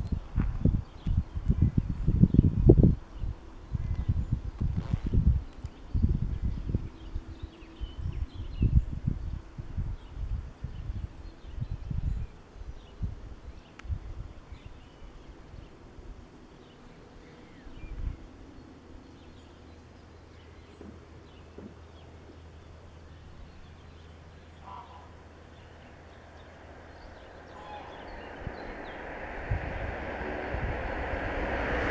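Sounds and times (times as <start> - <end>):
wind rumble on microphone: 0.0 - 21.8, 25.2 - 31.9
small birds chirping: 9.9 - 30.6.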